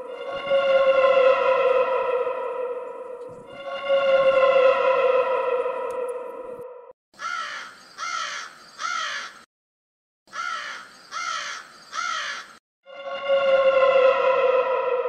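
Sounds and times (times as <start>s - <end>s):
held falling musical tone: 0.0s - 6.9s
crow cawing: 7.2s - 9.5s, 10.3s - 12.6s.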